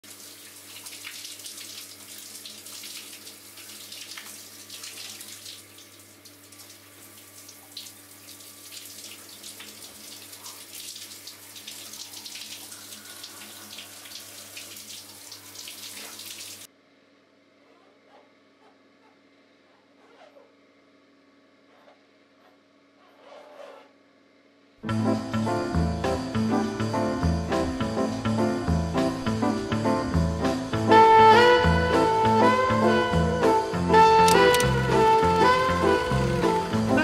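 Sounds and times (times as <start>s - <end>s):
shower water splashing on tiles: 0.0s - 16.7s, 34.3s - 37.0s.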